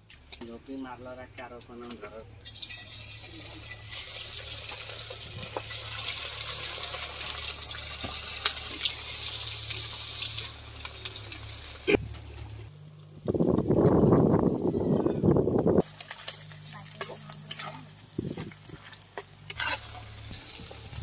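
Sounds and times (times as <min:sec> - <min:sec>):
chicken sizzling in hot oil: 0:02.4 - 0:12.0, 0:15.7 - 0:21.0.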